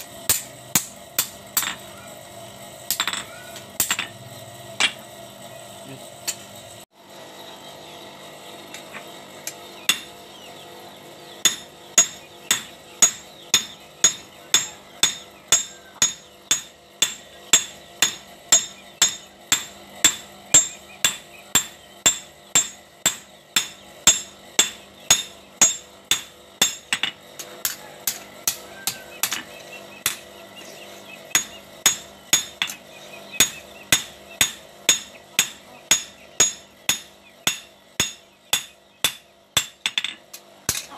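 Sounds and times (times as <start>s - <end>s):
hammer blows on anvil: 11.4s - 30.3s.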